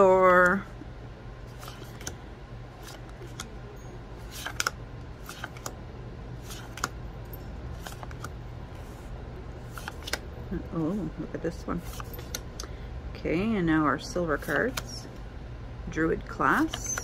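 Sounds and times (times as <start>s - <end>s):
steady low hum: 0.0s - 17.0s
cards clicking and snapping: 1.5s - 2.2s, 2.8s - 3.5s, 4.3s - 5.8s, 6.4s - 7.0s, 7.8s - 8.4s, 9.7s - 10.3s.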